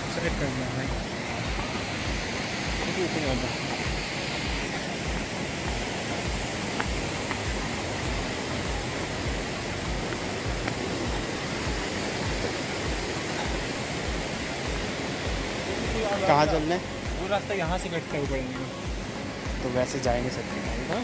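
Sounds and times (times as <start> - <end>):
footsteps on stone path: 0.0 - 15.6
steady rushing noise: 0.0 - 21.0.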